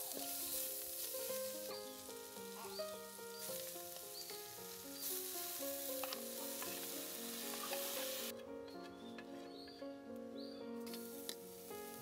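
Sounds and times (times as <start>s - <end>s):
onions sizzling in a wok: 0.0s - 8.3s, 10.9s - 12.0s
soft instrumental music: 0.0s - 12.0s.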